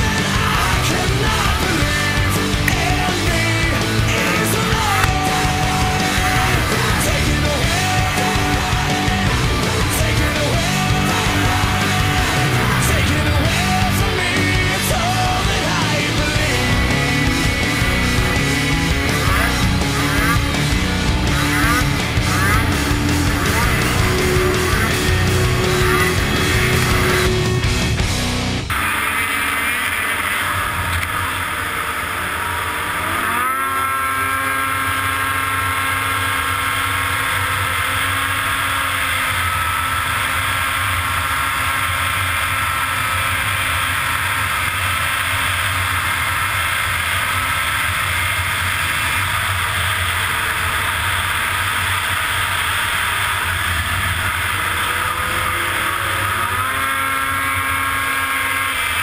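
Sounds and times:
snowmobile engine at high revs: 0.0 - 59.0.

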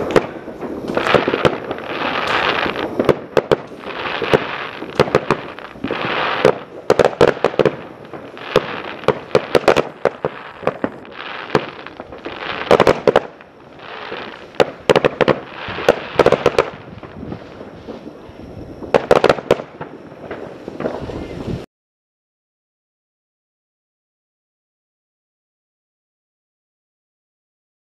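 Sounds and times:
firework bangs: 0.0 - 21.6
firework crackle: 0.0 - 21.7.

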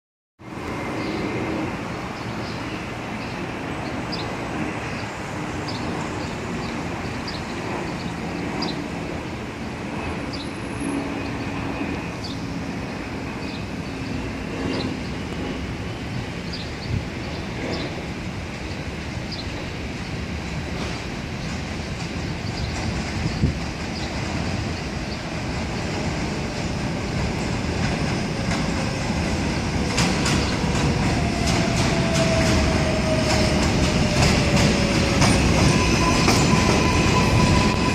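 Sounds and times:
distant subway train rumble: 0.4 - 37.9
street traffic: 0.4 - 37.9.

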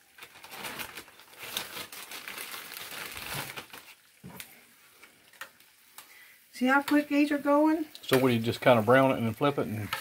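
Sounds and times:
plastic bag crinkling: 0.0 - 4.6.

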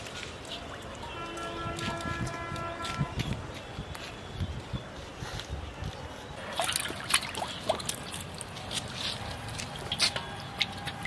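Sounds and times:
sharp water slaps: 6.4 - 8.9
water splashing in steel bowl: 6.4 - 9.0.

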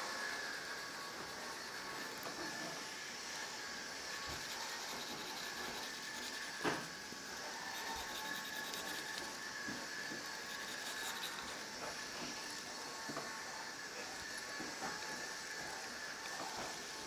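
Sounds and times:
pencil scratching on paper: 4.0 - 12.7.

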